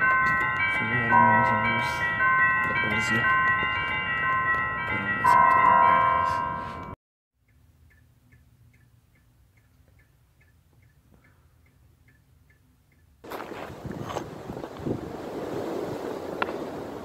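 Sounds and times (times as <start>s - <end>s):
bell-like music: 0.0s - 7.0s
wind: 0.0s - 17.0s.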